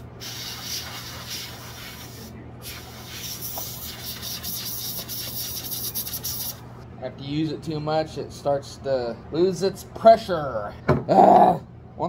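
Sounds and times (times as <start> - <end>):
compressed air hissing spray: 0.0 - 6.6.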